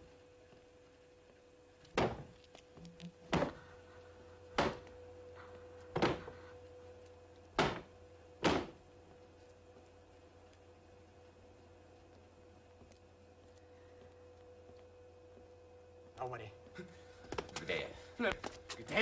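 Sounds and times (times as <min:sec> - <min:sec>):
heavy thuds: 0:05.9 - 0:06.5.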